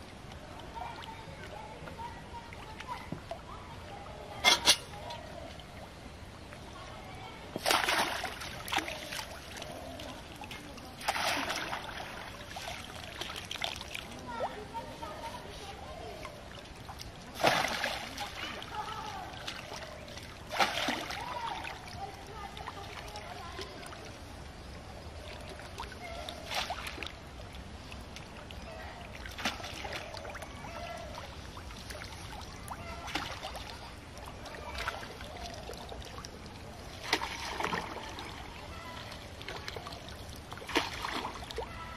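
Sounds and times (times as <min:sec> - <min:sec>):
steady background hiss: 0:00.0 - 0:41.9
net splashing through pond water: 0:07.5 - 0:24.0, 0:25.2 - 0:27.2, 0:28.6 - 0:41.9.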